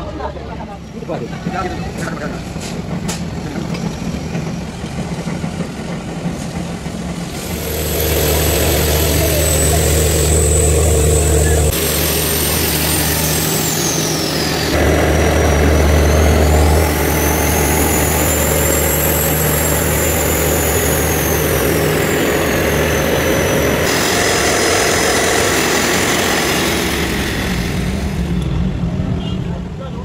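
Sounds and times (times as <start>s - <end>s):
diesel engine running: 6.9s - 29.0s
high whine: 7.3s - 28.9s.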